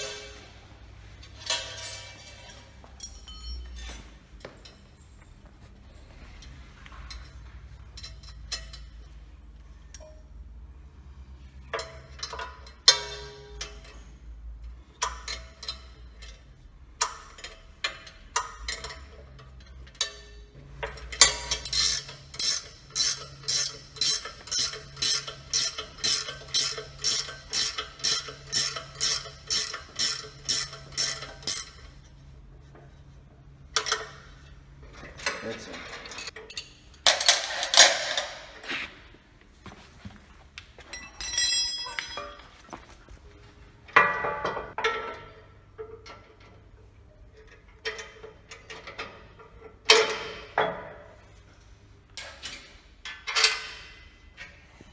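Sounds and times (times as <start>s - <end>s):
metal clanks: 0.0s - 9.2s, 11.6s - 38.6s
wrench ratcheting: 17.0s - 32.0s.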